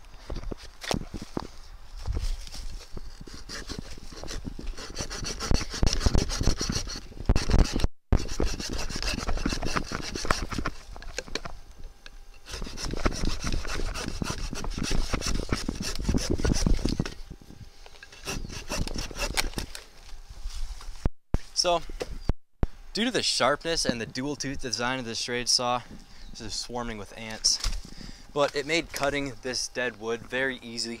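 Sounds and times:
hand saw cutting log: 3.1 - 10.8, 12.4 - 17.0, 18.1 - 19.6.

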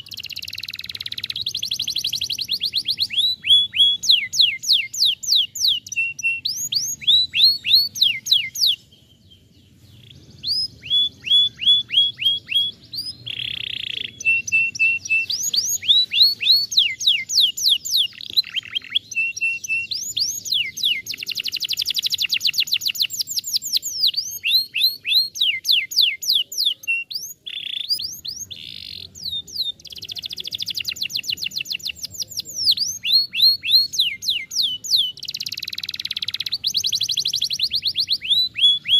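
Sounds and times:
canary singing: 0.0 - 38.9.

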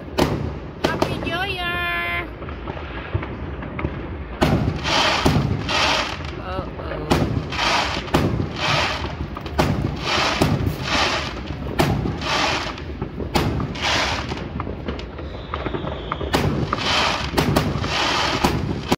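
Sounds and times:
crackling hiss of fireworks: 0.0 - 18.9
fireworks banging: 0.0 - 18.9
faint firework whistle: 15.0 - 18.5.

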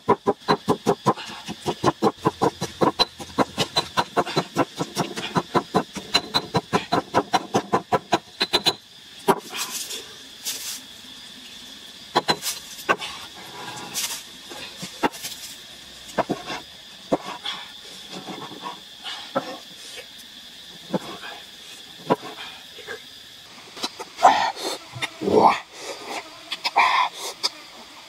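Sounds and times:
mortar and pestle pounding: 0.0 - 9.5.

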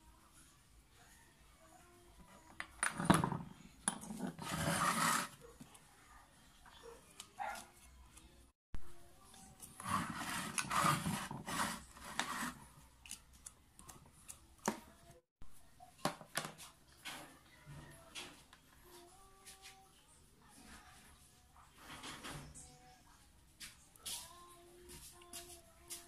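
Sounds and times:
rubbing and scraping: 2.9 - 5.5, 9.6 - 12.8.

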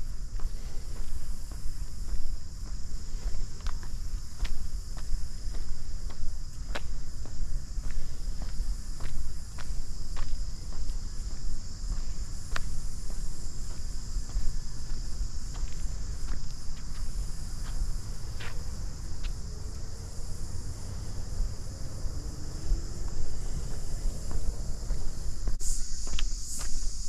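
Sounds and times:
cicadas buzzing: 0.0 - 27.0
footsteps on paved path: 0.0 - 27.0.

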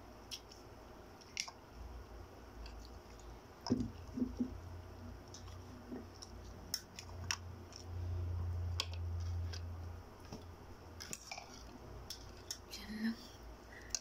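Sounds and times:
low hum: 1.7 - 14.0
wooden skewers tapping plastic plates: 3.6 - 4.6.

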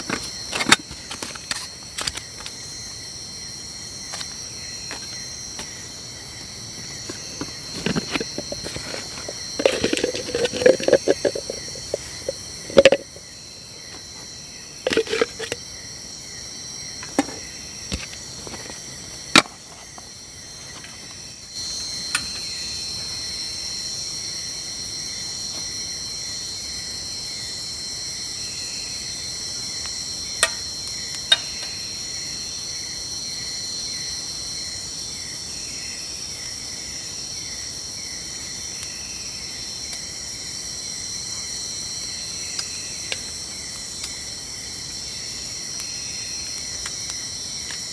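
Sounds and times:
crickets trilling: 0.0 - 47.9
insect chirping: 0.0 - 47.9
cooking gear clicks and knocks: 7.1 - 13.2, 14.9 - 15.6.

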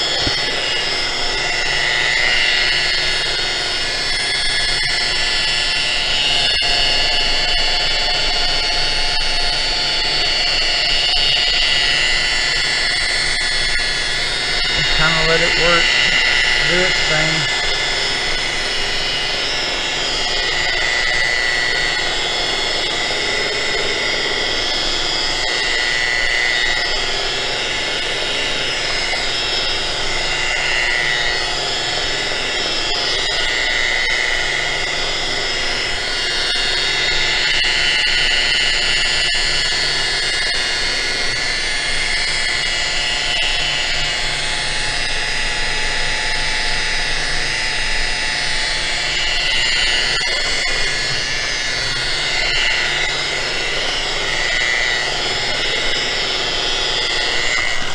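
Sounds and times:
electric rotary buffer whining: 0.0 - 57.9.

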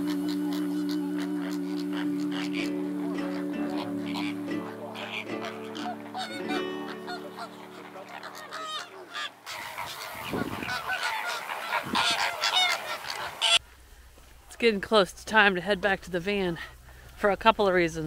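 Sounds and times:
flamingos calling: 0.0 - 13.6
soft background music: 0.8 - 8.8.

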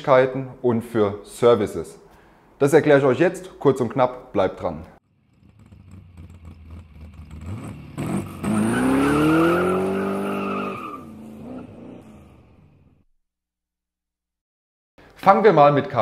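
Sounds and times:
car engine revving: 5.0 - 13.0.

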